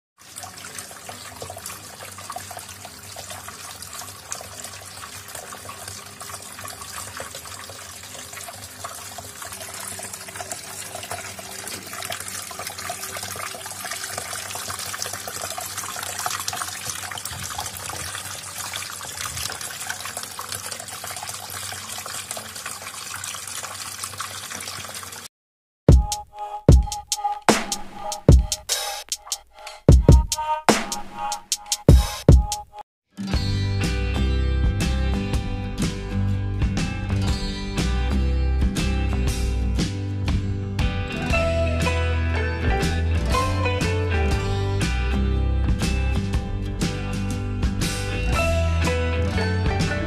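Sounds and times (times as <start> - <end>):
water trickling and splashing: 0.2 - 25.3.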